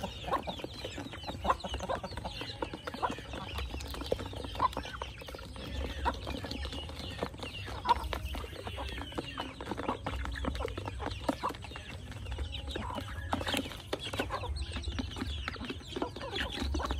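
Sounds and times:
beaks pecking plastic dish: 0.0s - 16.9s
chickens clucking: 0.0s - 16.9s.

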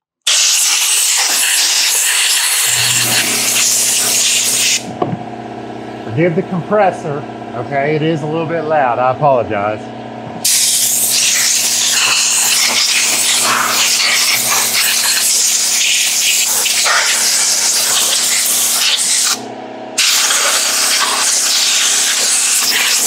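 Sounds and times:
air blow gun hissing: 0.3s - 4.9s, 10.4s - 19.4s, 20.0s - 23.0s
air compressor humming: 0.3s - 23.0s.

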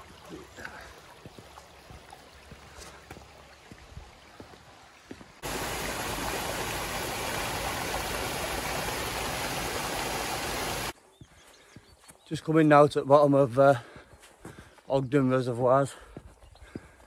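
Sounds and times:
stream trickling: 0.0s - 11.0s
water rushing over weir: 5.4s - 10.9s.

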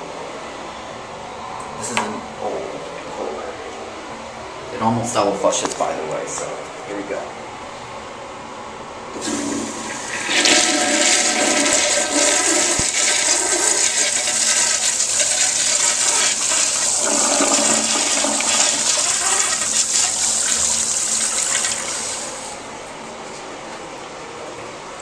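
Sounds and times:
toilet flushing: 9.1s - 22.7s.

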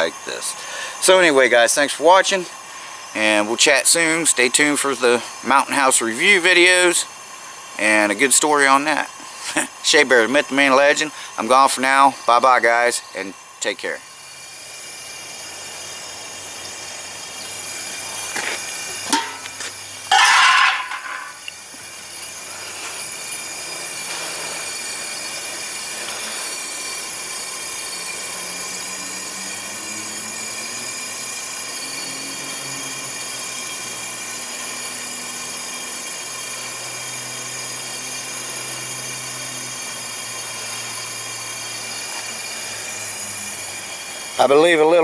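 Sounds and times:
gas burner hissing: 0.0s - 45.0s.

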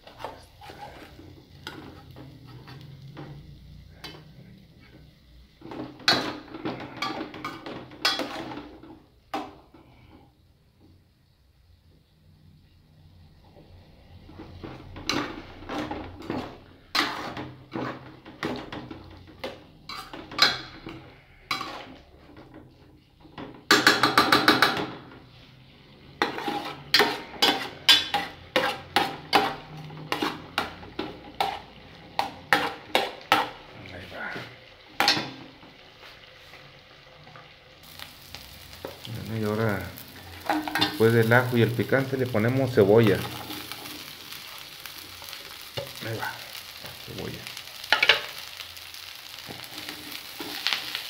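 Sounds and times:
plastic spoon clacking on pans: 23.7s - 24.9s.

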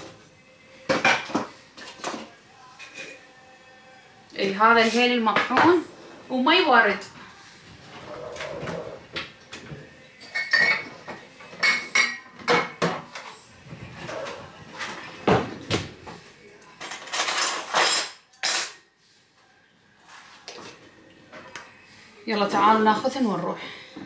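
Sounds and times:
glass jars and bottles clinking: 10.2s - 13.0s
metal cutlery rattling: 16.8s - 18.8s.

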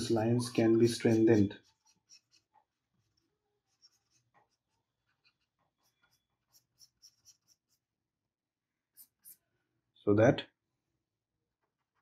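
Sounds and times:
stylus scratching on tablet: 0.0s - 8.0s, 8.9s - 9.5s.

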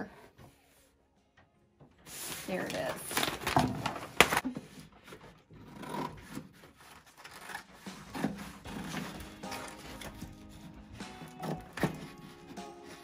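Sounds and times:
plastic sheet crackling and rustling: 2.1s - 4.5s.

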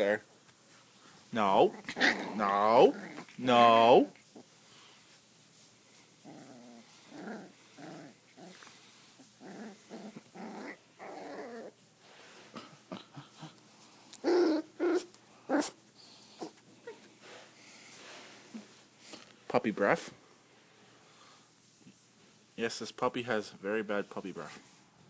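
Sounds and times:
puppy growling: 1.5s - 4.5s, 6.2s - 11.8s, 12.5s - 17.0s.

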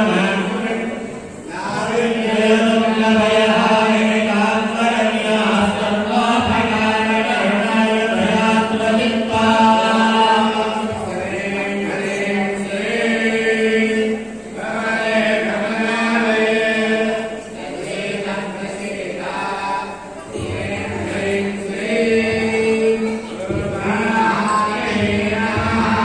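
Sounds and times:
group chanting a hymn: 0.0s - 26.0s.

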